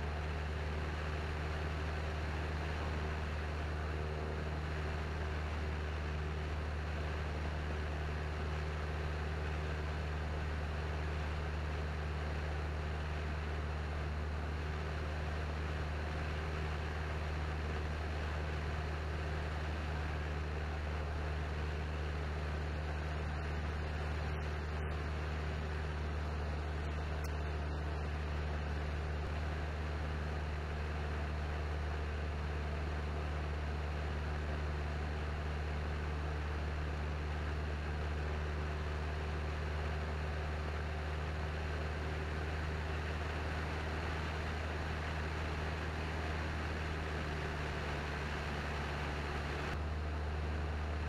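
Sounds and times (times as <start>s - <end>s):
aircraft engine droning: 0.0s - 51.0s.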